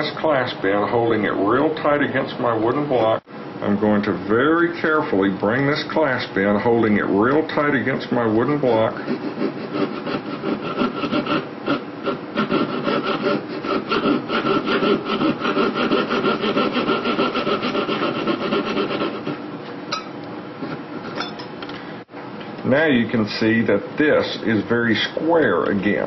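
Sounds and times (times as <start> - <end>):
saw rasping through metal: 8.6 - 19.4.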